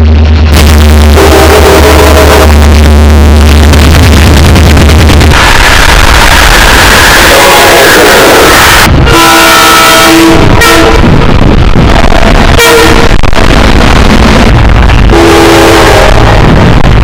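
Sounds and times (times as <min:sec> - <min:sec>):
train horn blasting: 0:00.6 - 0:02.6, 0:05.3 - 0:11.2, 0:12.6 - 0:13.2, 0:15.1 - 0:16.3.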